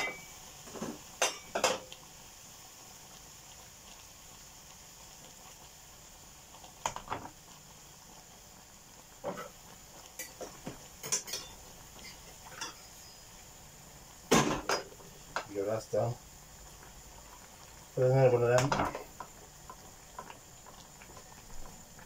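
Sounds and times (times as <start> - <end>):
kitchenware knocking and clinking: 0.8 - 1.9, 10.3 - 12.8, 14.3 - 15.5, 18.6 - 19.0
kettle set down on worktop: 14.3 - 14.9.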